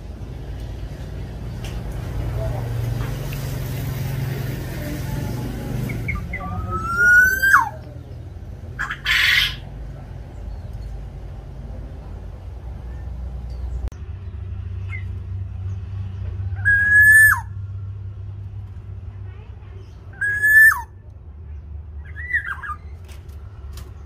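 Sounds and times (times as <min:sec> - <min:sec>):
bird harsh rasping call: 0:05.9 - 0:07.8, 0:08.7 - 0:09.7, 0:16.6 - 0:17.5, 0:20.1 - 0:20.9
bird fluty whistle: 0:16.6 - 0:17.5.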